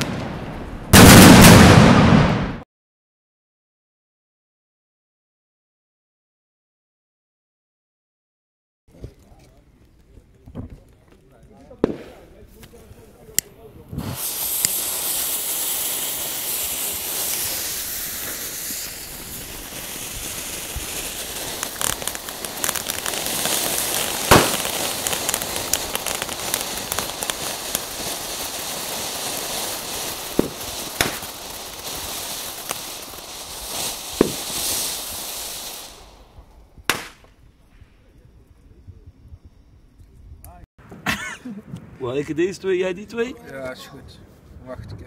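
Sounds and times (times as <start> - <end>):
crackles and sharp pops: 8.9 - 40.6
firework fountains hissing: 11.8 - 37.4.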